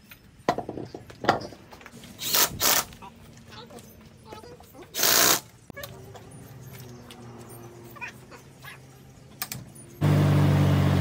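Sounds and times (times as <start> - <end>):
faint squeaks and clicks: 3.0 - 10.0.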